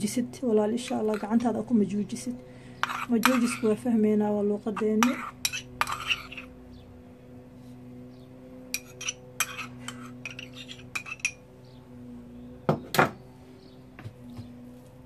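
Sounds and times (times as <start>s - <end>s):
metal spoon clinking bowl: 2.8s - 3.8s, 4.8s - 6.5s, 8.8s - 11.4s.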